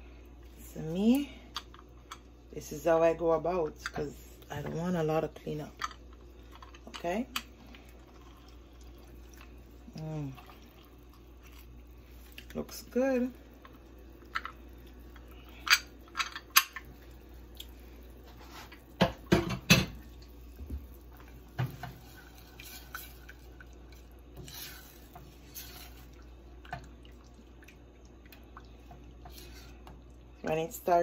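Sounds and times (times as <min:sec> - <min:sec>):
spatula stirring sauce: 0:21.2 - 0:26.9.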